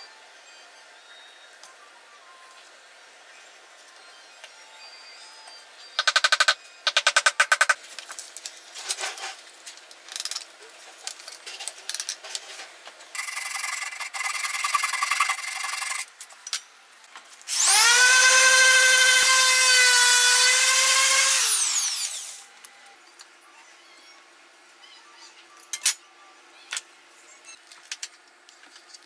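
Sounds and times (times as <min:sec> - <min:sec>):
electric power tool motor: 0:17.5 - 0:22.5.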